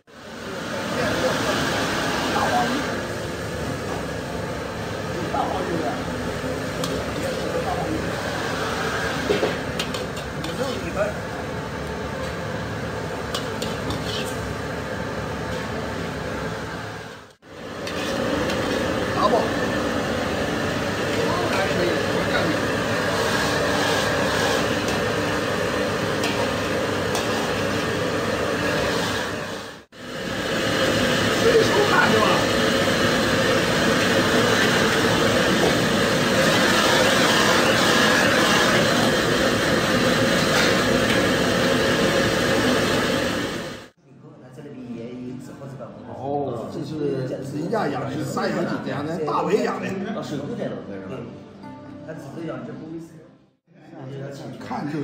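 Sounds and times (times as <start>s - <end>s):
extractor hood and burners roaring: 0.2s - 43.9s
food sizzling in a wok: 12.9s - 16.6s, 17.5s - 43.9s.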